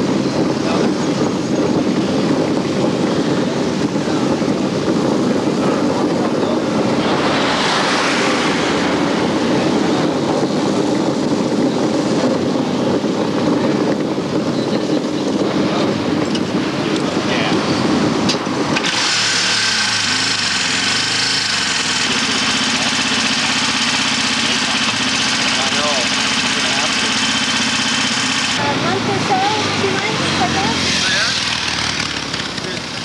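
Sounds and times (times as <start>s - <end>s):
vehicle engines rumbling: 0.0s - 33.0s
wind on microphone: 0.0s - 33.0s.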